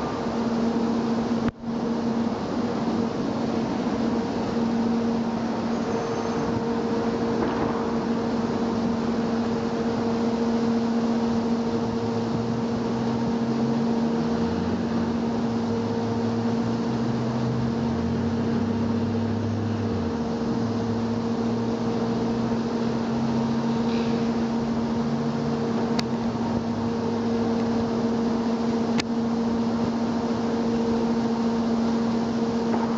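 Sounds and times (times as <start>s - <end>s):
steady mechanical hum: 0.0s - 32.9s
low drone shifting pitch: 5.1s - 10.2s.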